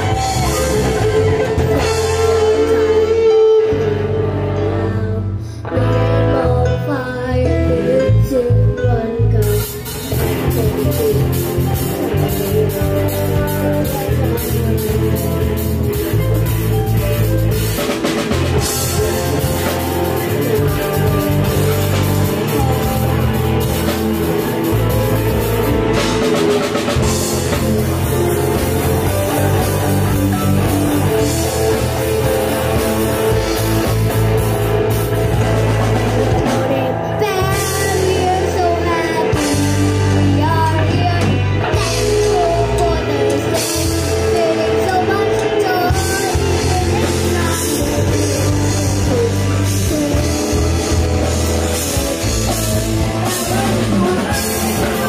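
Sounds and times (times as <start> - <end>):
rock band playing: 0.0 - 55.0
drum kit and cymbals: 9.5 - 38.2.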